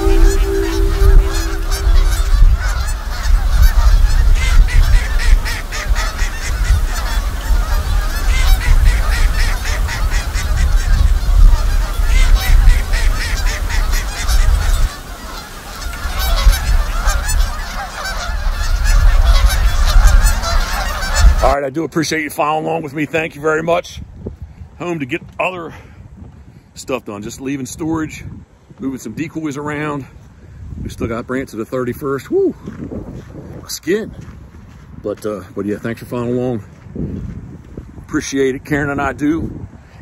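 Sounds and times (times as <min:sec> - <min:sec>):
wind buffeting microphone: 0:00.0 - 0:21.5, 0:23.8 - 0:26.7, 0:30.3 - 0:31.2, 0:32.0 - 0:40.0
geese honking: 0:00.0 - 0:21.6.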